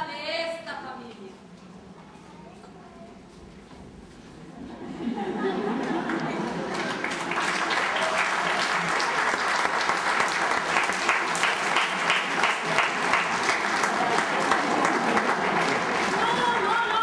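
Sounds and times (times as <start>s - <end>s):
audience applauding: 5.4s - 17.0s.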